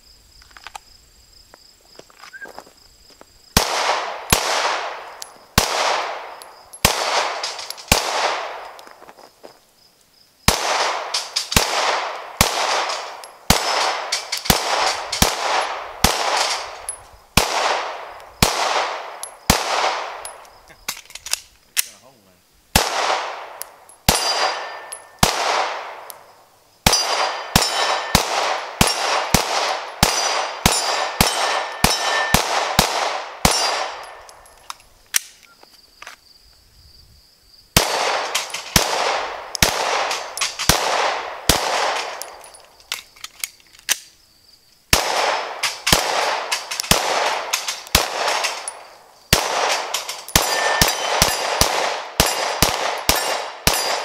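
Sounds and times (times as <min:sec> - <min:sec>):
pistol firing rapid shots: 0:03.6 - 0:08.6, 0:10.5 - 0:16.8, 0:17.4 - 0:20.3, 0:22.7 - 0:26.1, 0:26.8 - 0:34.1, 0:37.8 - 0:42.3, 0:44.9 - 0:48.7, 0:49.3 - 0:54.0.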